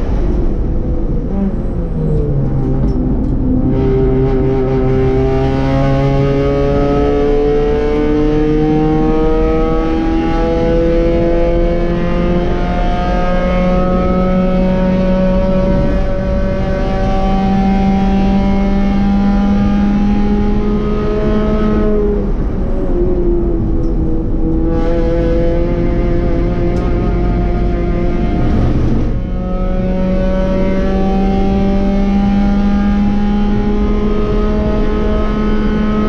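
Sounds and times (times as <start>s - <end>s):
other car engines behind: 0.0s - 36.0s
race car engine at full throttle: 0.0s - 36.0s
wind and road noise: 0.0s - 36.0s.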